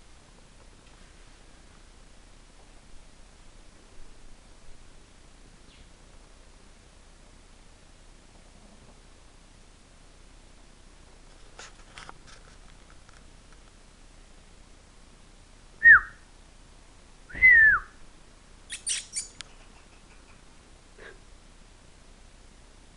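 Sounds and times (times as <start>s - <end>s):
loud whistles sliding down: 17.3s - 17.9s.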